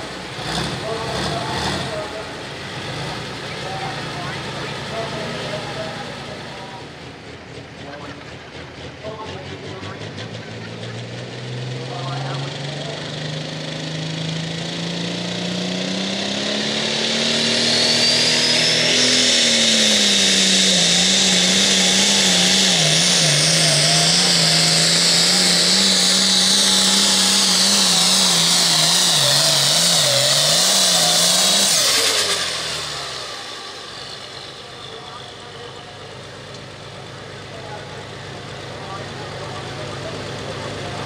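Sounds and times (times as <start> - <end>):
diesel engine at full throttle: 0.0 - 41.0
turbo whine: 15.4 - 41.0.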